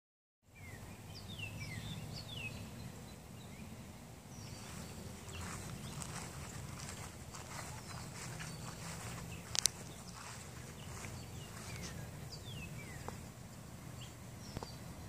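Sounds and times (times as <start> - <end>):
low outdoor rumble: 0.6 - 15.0
faint clicks: 9.5 - 10.0.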